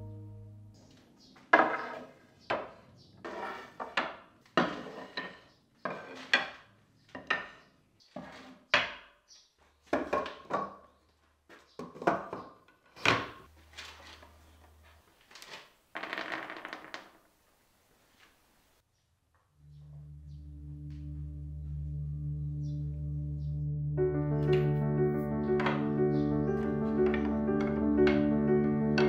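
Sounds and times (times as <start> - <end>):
wooden boards knocking on bench: 9.9 - 10.8.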